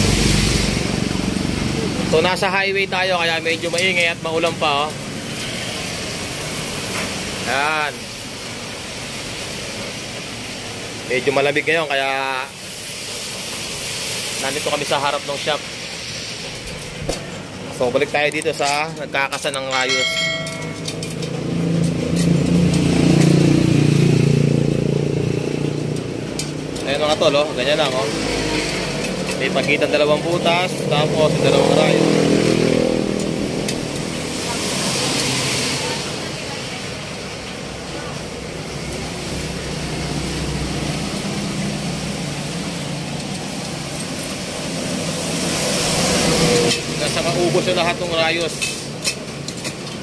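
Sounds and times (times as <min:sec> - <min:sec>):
tyres hissing on wet road: 0:00.0 - 0:19.7, 0:21.0 - 0:50.0
vehicle passing: 0:20.1 - 0:48.1.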